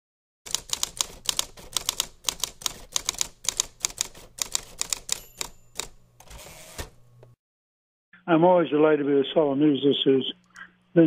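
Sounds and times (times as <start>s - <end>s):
typewriter keys clacking: 0.5s - 6.0s
small bell ringing: 5.1s - 5.9s.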